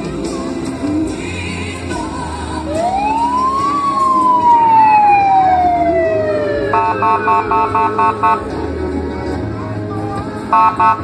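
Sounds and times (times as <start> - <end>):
fire truck siren winding: 2.8 - 8.4
pulsing horn blasts: 5.7 - 8.8, 10.5 - 11.0.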